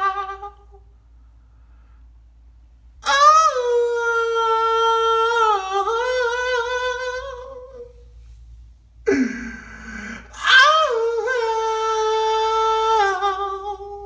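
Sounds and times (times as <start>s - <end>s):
lower cry: 0.0s - 0.8s, 3.0s - 8.0s, 9.1s - 14.0s.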